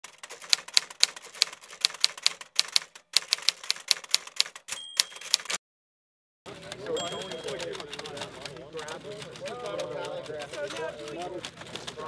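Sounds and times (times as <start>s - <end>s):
typewriter keys clacking: 0.0s - 5.6s, 6.5s - 12.0s
typewriter carriage bell ring: 4.6s - 5.6s, 6.7s - 10.2s.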